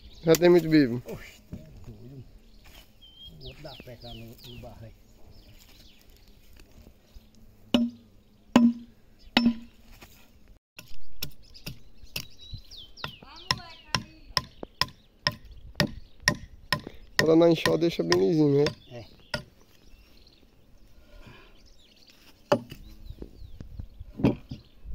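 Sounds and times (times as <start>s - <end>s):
adze striking wood: 7.7s - 9.8s, 13.0s - 19.6s, 22.5s - 22.8s.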